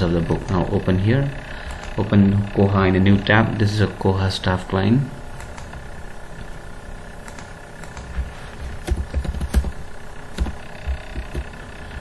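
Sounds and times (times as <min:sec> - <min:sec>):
low background hum: 0:00.0 - 0:12.0
keyboard typing clicks: 0:07.2 - 0:11.5.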